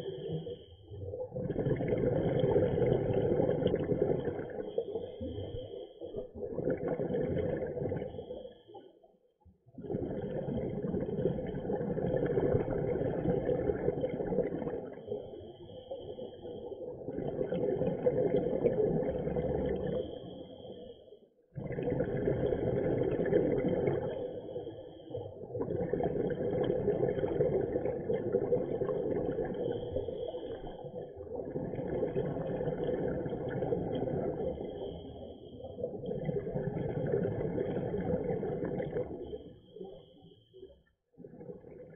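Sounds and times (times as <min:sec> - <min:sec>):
bubbling: 0:01.2 - 0:08.2, 0:21.6 - 0:24.3, 0:25.4 - 0:35.0, 0:35.9 - 0:39.3.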